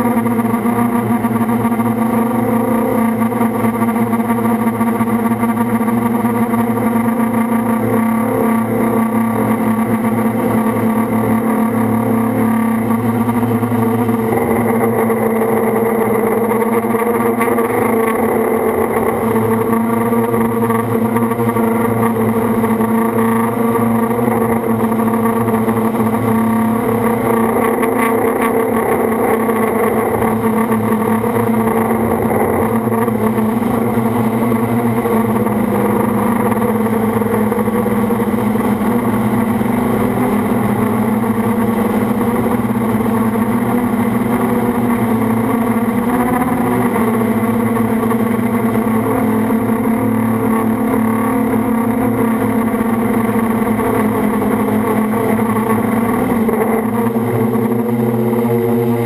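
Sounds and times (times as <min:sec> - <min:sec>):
drone motors buzzing: 0:00.0 - 0:59.0.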